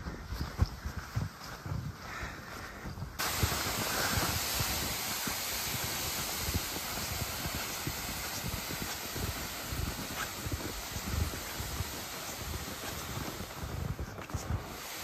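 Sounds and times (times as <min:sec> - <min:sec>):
footsteps in snow: 0:00.0 - 0:04.3, 0:07.4 - 0:15.0
plastic sled hissing over snow: 0:03.2 - 0:15.0.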